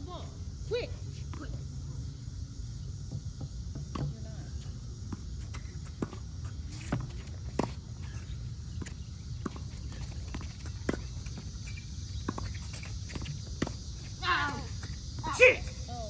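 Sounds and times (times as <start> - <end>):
steady high hiss: 0.0 - 16.0
footsteps on hard court: 5.1 - 15.3.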